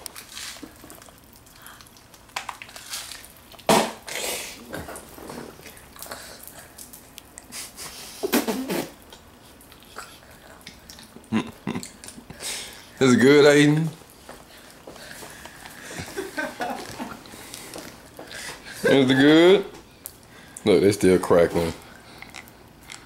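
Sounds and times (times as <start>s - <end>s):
popping candy crackling: 0.0s - 7.6s.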